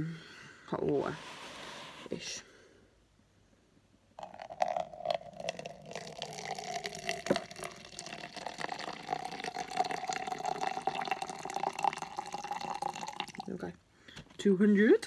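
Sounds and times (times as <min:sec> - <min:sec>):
water pouring into a plastic jug: 0:04.2 - 0:13.7.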